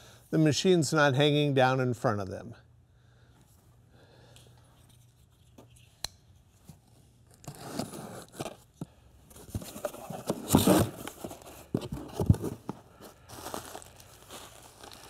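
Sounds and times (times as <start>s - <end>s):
cardboard box tearing: 7.4s - 8.6s, 9.5s - 12.7s
cardboard flaps rustling: 9.4s - 15.0s.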